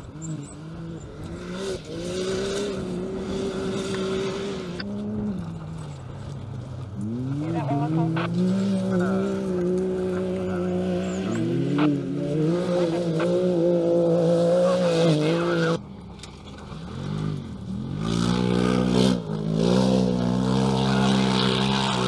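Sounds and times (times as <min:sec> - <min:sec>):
engine revving up and down: 0:00.0 - 0:05.8, 0:07.0 - 0:15.8, 0:16.7 - 0:22.0
race car engines at high revs: 0:00.0 - 0:22.0.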